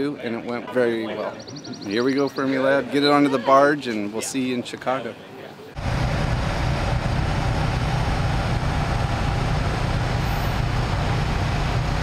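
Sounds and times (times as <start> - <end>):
vehicle engines running: 5.7 - 12.0.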